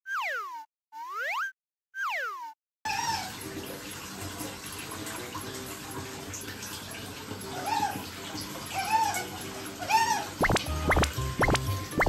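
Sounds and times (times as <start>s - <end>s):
otter squeak: 8.7s - 12.0s.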